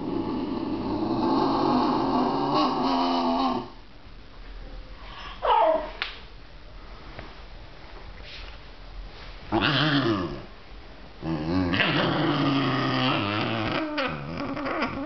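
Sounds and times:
dog growling: 0.0 - 3.8, 9.5 - 10.5, 11.2 - 15.0
dog whining: 5.2 - 6.0, 11.7 - 15.0.

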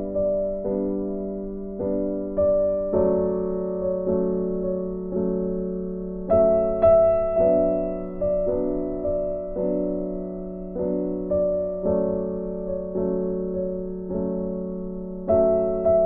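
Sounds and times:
piano chords ringing: 0.0 - 16.0.

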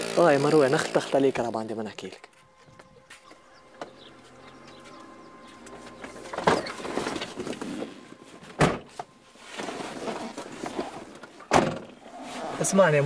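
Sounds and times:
thump and rustling: 8.4 - 12.0
car door slamming: 8.5 - 9.1, 11.4 - 12.0.

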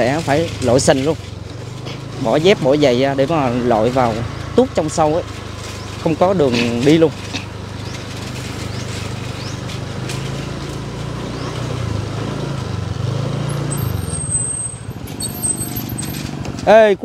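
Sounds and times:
small motorbike engine running: 0.0 - 17.0.

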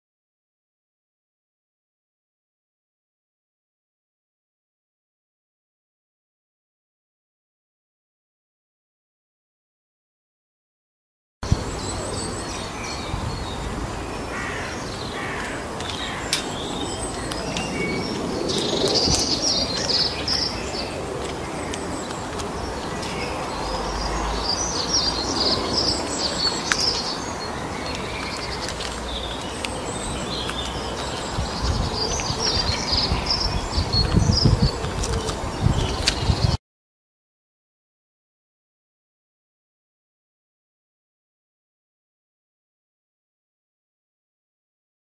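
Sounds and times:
outdoor background hiss: 11.4 - 17.9
songbirds chirping and singing: 11.4 - 36.6.

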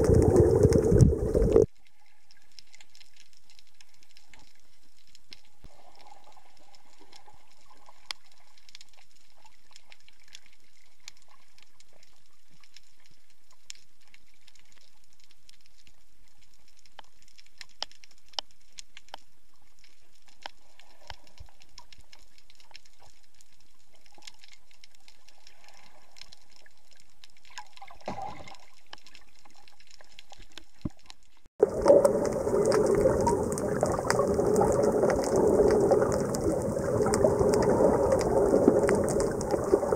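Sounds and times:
rushing churning water: 0.0 - 1.7, 31.6 - 39.9
water gurgling: 0.0 - 1.7, 31.6 - 39.9
faint underwater hiss: 0.0 - 2.8, 31.6 - 39.9
sharp clicks and crackles: 0.0 - 6.1, 6.7 - 39.9.

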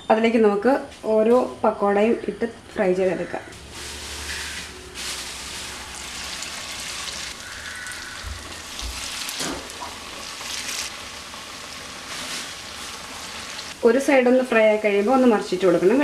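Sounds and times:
hot oil sizzling: 3.7 - 16.0.

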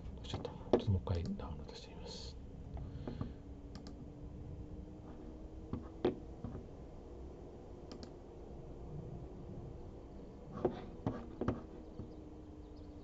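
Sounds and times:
faint steady hum: 0.0 - 13.0
computer mouse clicks: 3.7 - 4.0, 7.9 - 8.2.

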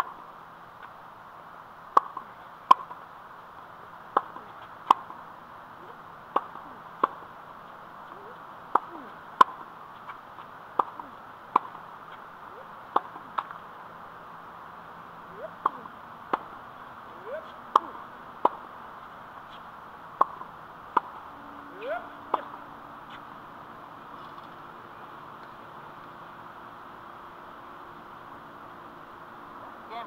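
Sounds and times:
tennis racket striking balls: 1.9 - 3.0, 4.1 - 5.2, 5.9 - 7.4, 8.1 - 14.1, 15.3 - 23.5.

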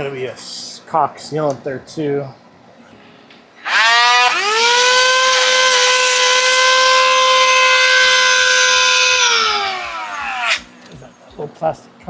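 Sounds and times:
electric cutting tool whining: 3.6 - 10.8.

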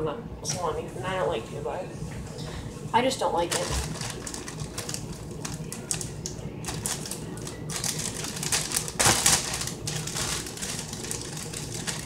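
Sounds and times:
loud packaging rustle: 3.5 - 12.0
plastic packaging crinkling: 3.5 - 12.0.

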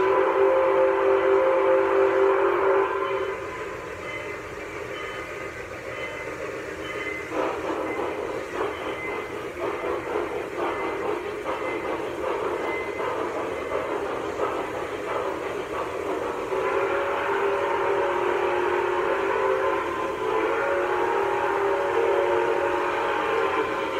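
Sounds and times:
model train whistle tone: 0.0 - 5.3, 16.5 - 23.9
model train humming and clicking: 0.0 - 23.9.

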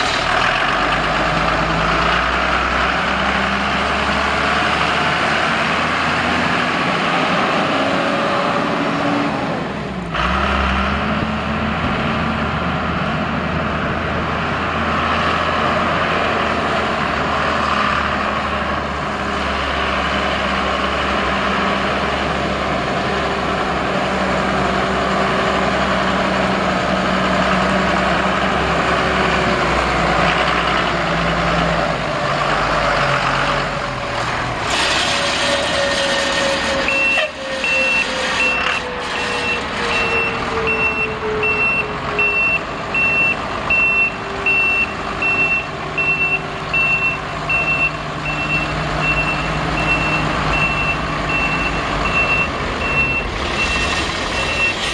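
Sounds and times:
diesel truck engine running: 0.0 - 54.9
backup alarm beeping: 39.4 - 54.8.

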